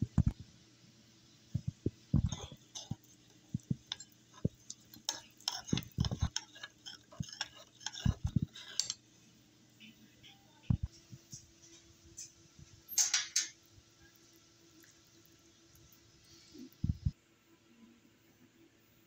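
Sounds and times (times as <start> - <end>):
metal spoon clinking against bowl: 3.6 - 9.0.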